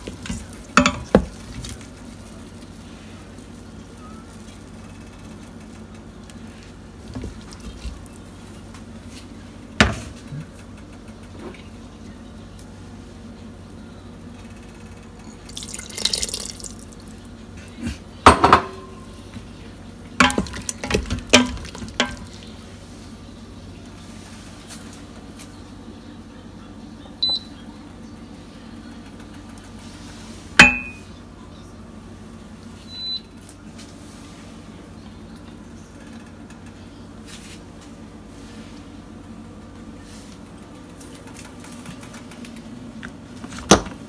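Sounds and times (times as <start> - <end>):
liquid splashing into pot: 15.5 - 16.9
spoon stirring in steel pot: 20.2 - 22.6.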